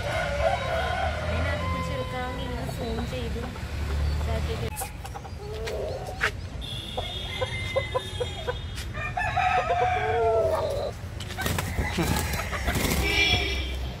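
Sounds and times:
rooster crowing: 0.0 - 2.3, 7.0 - 10.8, 11.6 - 13.2
chickens clucking: 0.0 - 13.6
wings flapping and scuffling: 11.1 - 13.8.

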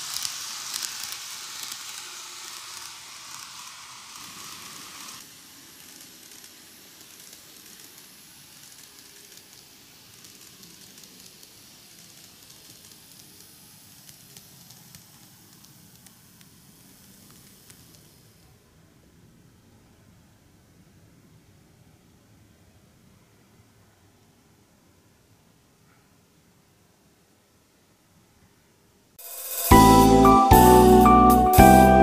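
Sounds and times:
model train wheels rolling: 0.0 - 18.6.

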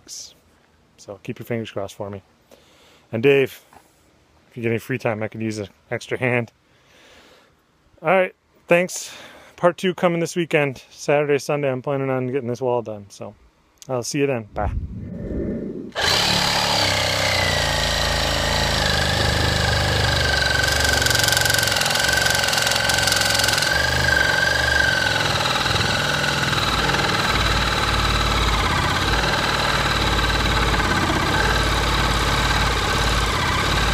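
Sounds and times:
harsh rasp: 15.9 - 33.9
reciprocating saw cutting wood: 15.9 - 33.9.

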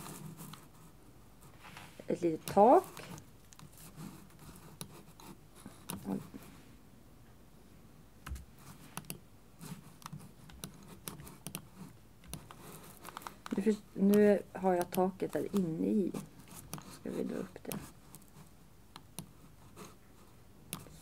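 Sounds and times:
mouse and keyboard clicks: 10.0 - 15.8.

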